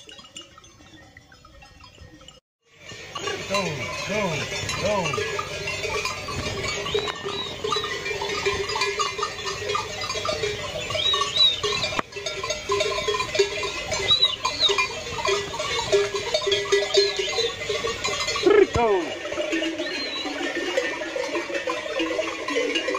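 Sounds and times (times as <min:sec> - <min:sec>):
animal bells clanking: 0:00.0 - 0:22.9.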